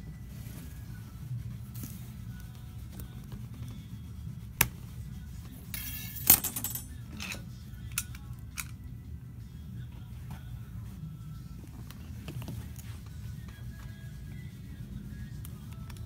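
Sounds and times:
metal tools clinking on glass: 5.7 - 7.4.

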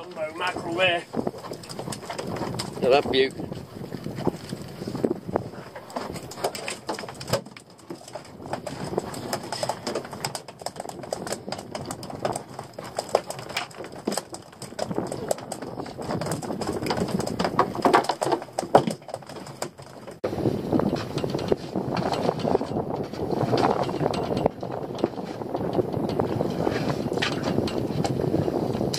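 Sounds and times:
fish flapping on a deck: 4.0 - 20.2.

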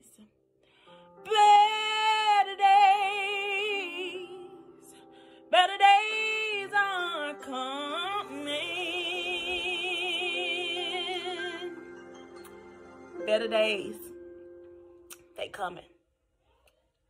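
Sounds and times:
woman singing gospel ballad: 1.3 - 12.0.

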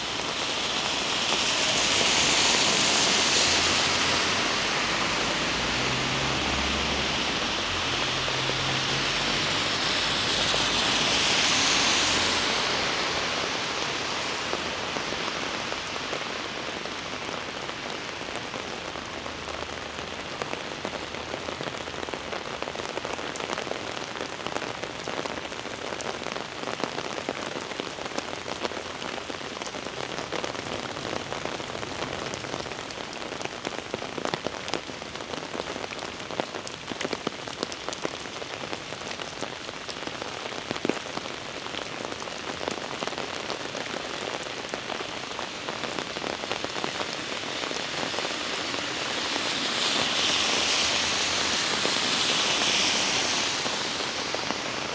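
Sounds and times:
heavy rain hissing: 0.0 - 19.0, 38.3 - 54.9.

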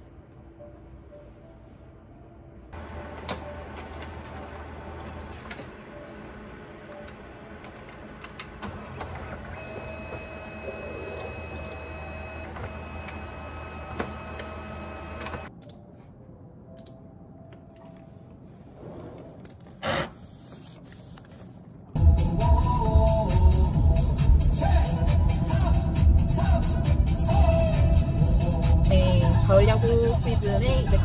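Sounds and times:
photocopier hum: 1.6 - 15.5.

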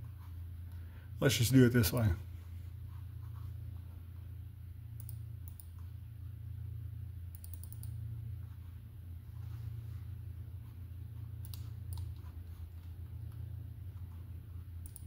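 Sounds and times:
steady low hum: 0.0 - 15.0
computer mouse clicks: 5.0 - 6.0, 7.3 - 8.0, 11.4 - 13.4, 14.8 - 15.0.

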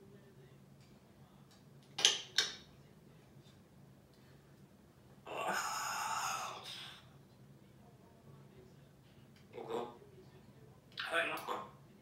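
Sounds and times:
parrot hissing: 5.3 - 7.1.

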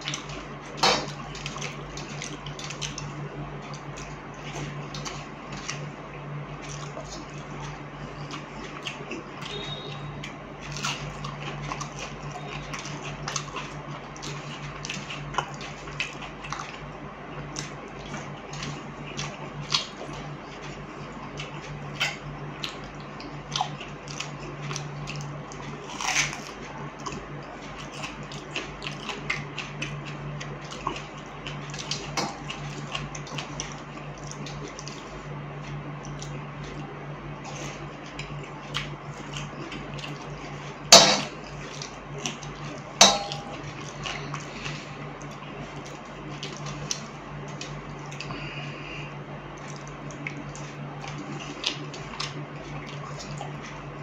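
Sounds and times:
chewing and lip smacks: 0.0 - 54.0
wet squishing of rice: 0.0 - 54.0
low hum: 39.0 - 51.4.

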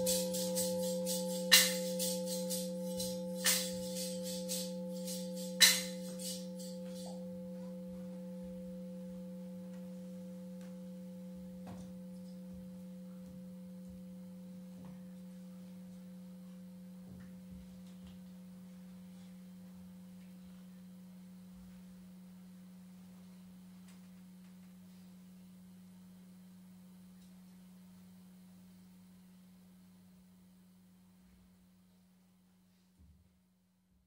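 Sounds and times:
high jingling rattle: 0.0 - 8.8
metal percussion ringing: 0.0 - 15.2.

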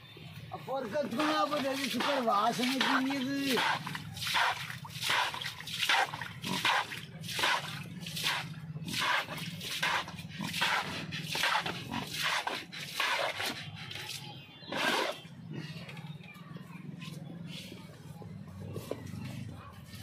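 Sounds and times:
water splashing on concrete: 0.8 - 14.3
pigs grunting: 3.5 - 13.6.

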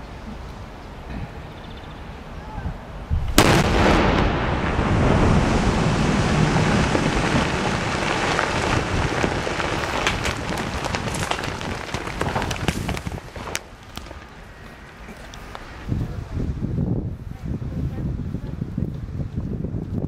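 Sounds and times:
loud explosive blast: 3.2 - 10.9
water and ice rushing: 3.5 - 14.4
small ice impacts: 6.8 - 14.4.

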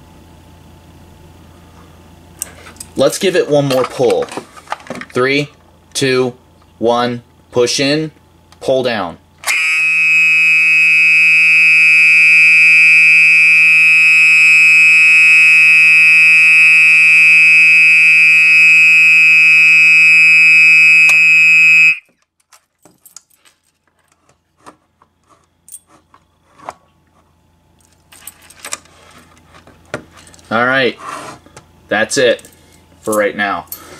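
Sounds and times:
alarm horn tone: 9.4 - 22.1
keys jingling: 27.8 - 28.8.

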